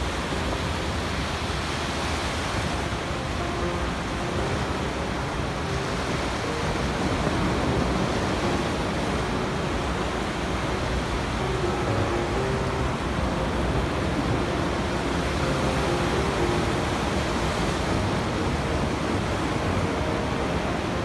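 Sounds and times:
waves breaking on beach: 0.0s - 21.0s.

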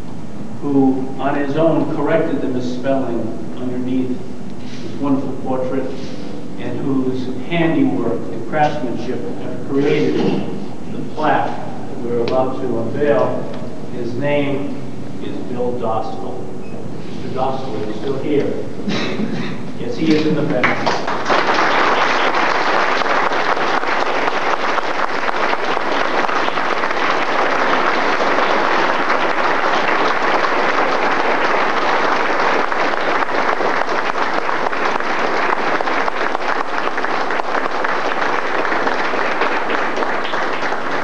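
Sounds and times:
audience applauding: 20.5s - 41.0s.

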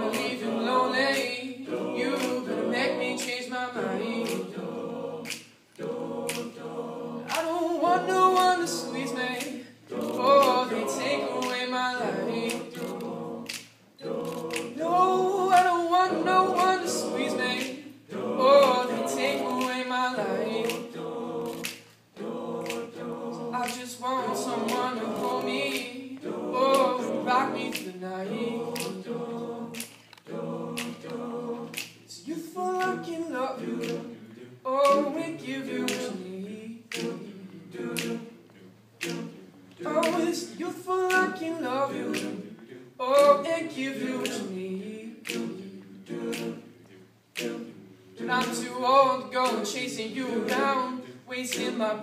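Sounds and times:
vocal group singing in harmony: 0.0s - 52.0s
percussive clicks: 5.2s - 6.6s, 12.4s - 14.8s, 20.6s - 21.9s, 22.6s - 23.8s, 28.7s - 29.0s, 29.8s - 32.0s, 33.8s - 34.1s, 36.9s - 37.3s, 37.9s - 38.2s, 39.0s - 39.4s, 42.0s - 42.4s, 45.2s - 46.6s.

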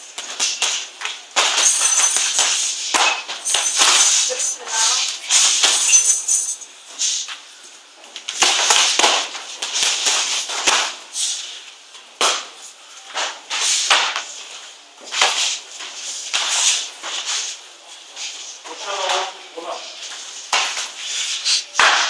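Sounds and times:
gloved punches and kicks slapping: 8.3s - 11.0s, 21.8s - 22.0s.

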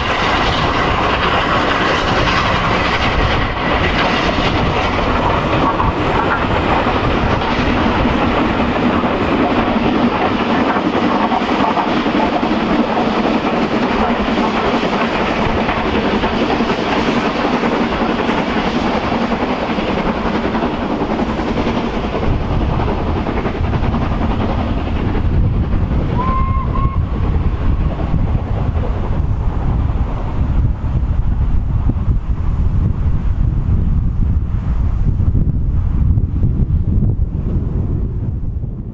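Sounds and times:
steam locomotive exhaust: 0.0s - 38.1s
wind buffeting microphone: 0.0s - 38.9s
two-note train whistle: 26.2s - 27.2s.

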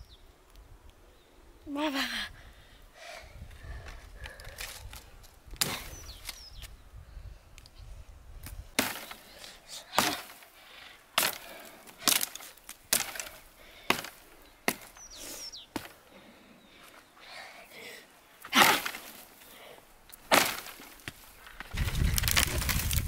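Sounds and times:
axe chopping wood: 8.8s - 9.2s, 9.9s - 10.4s, 11.2s - 15.0s, 18.5s - 19.2s, 20.2s - 21.2s.

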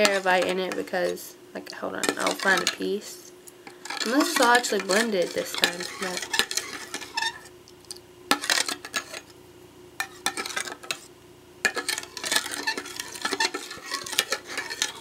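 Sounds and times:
metal spoon stirring in bowl: 0.0s - 1.2s, 2.0s - 2.9s, 3.7s - 7.5s, 8.3s - 9.3s, 10.0s - 15.0s.

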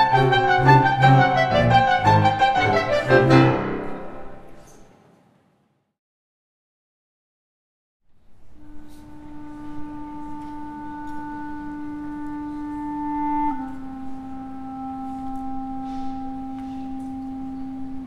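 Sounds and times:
woodwind playing long held notes: 0.0s - 4.7s, 8.5s - 18.0s.

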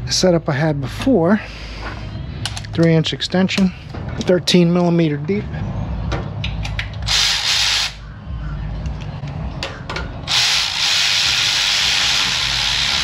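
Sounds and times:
power ratchet spinning a bolt: 7.1s - 8.0s, 10.3s - 13.0s.

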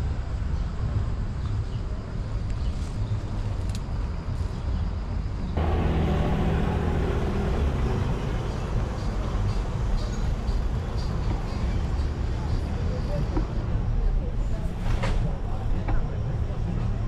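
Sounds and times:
street traffic noise: 0.0s - 17.0s
low rumble: 5.6s - 9.4s.

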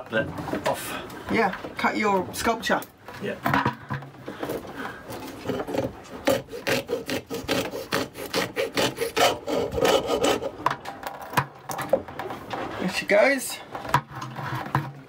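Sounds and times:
hacksaw cutting pipe: 5.2s - 11.4s.

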